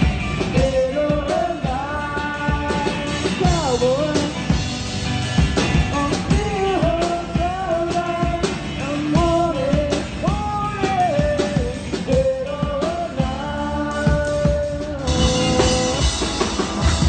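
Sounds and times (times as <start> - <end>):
drum kit steady beat: 0.0 - 17.0
electric guitar: 0.0 - 17.0
singer holding sliding notes: 0.0 - 17.0.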